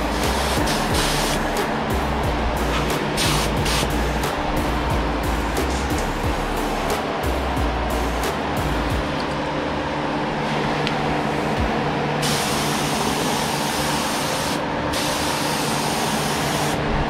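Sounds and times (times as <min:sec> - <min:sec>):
paint spray gun hissing: 0:00.0 - 0:01.6, 0:03.2 - 0:04.0, 0:12.2 - 0:16.8
steady low hum: 0:00.0 - 0:17.0.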